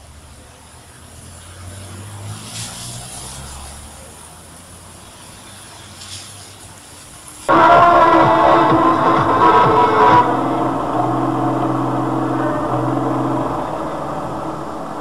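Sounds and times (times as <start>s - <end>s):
heavy vehicles engine rumble: 0.0s - 15.0s
loud music: 7.5s - 15.0s.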